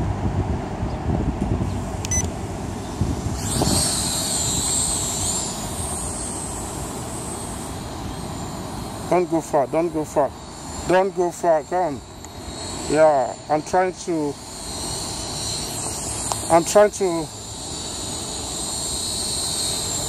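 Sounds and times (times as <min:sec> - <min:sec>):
wind rumbling on microphone: 0:00.0 - 0:06.2
drone propellers whining: 0:01.5 - 0:20.0
short beep: 0:02.1 - 0:02.3.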